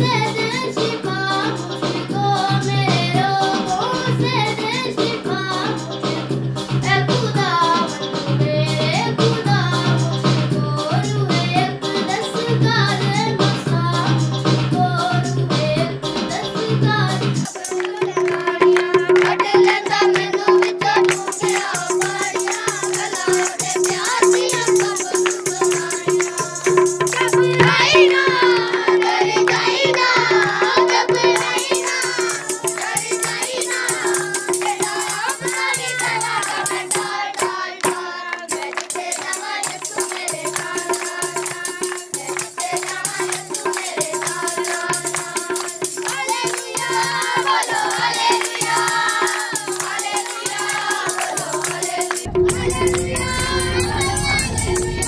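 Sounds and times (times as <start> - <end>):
devotional folk singing: 0.0 - 55.0
tabla drums: 15.6 - 55.0.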